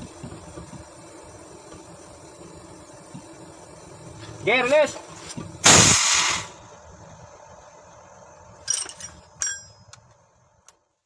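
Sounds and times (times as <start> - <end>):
compressed air discharge: 5.1 - 6.7
faint metallic clinks: 8.6 - 10.0.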